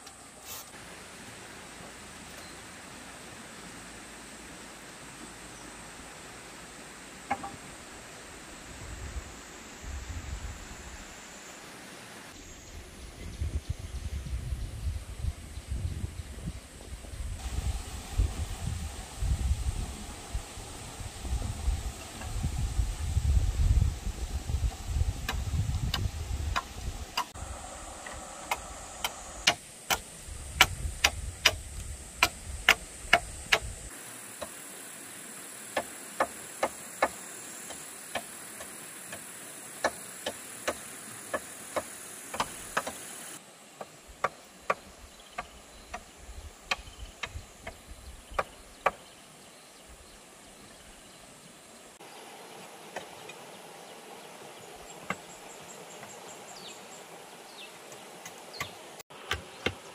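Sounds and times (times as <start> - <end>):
high insect hum: 0.0 - 59.9
sharp knocks on stone and bamboo: 7.3 - 7.6, 28.5 - 31.6, 32.2 - 33.7, 35.7 - 39.2, 39.8 - 43.1, 43.8 - 46.0, 46.7 - 49.0, 55.0 - 55.2, 58.2 - 59.9.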